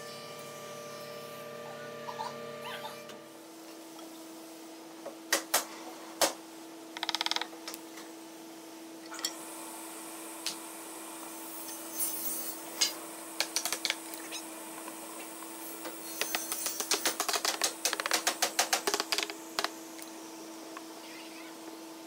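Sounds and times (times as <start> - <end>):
steady hum: 7.9 - 22.0
rapid wooden rattle: 16.2 - 19.7.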